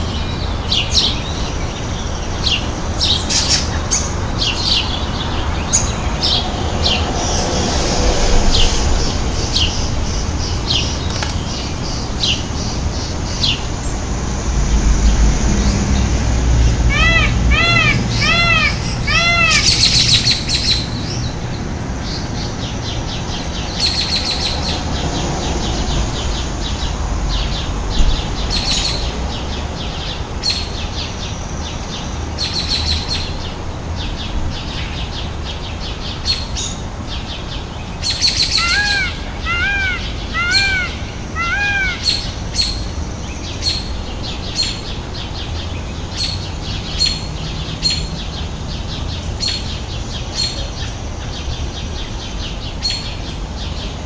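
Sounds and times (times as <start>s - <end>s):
peacock wailing cries: 16.9s - 20.4s, 38.4s - 42.4s.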